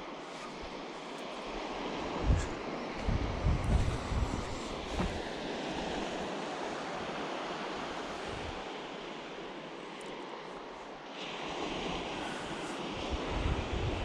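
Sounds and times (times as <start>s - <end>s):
surf rushing: 0.0s - 14.0s
wind buffeting microphone: 1.6s - 6.4s, 12.1s - 14.0s.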